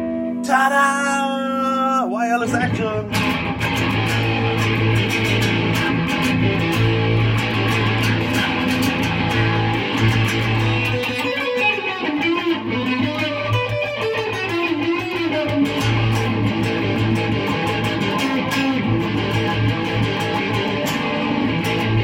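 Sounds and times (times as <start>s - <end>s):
electric guitar riffing: 0.0s - 22.0s.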